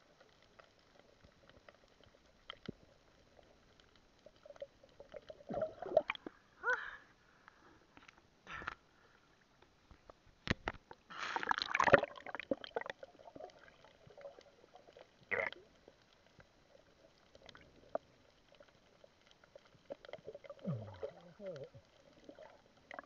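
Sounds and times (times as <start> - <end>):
water splashing and churning: 11.2 - 15.8
muffled underwater sounds: 12.0 - 23.0.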